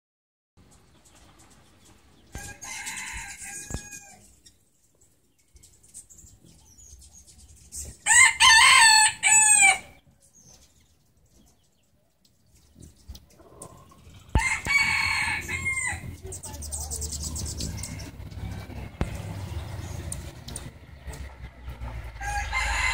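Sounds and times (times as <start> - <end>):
rooster crowing: 2.3 - 4.3, 8.1 - 10.0, 14.3 - 16.1, 22.1 - 22.9.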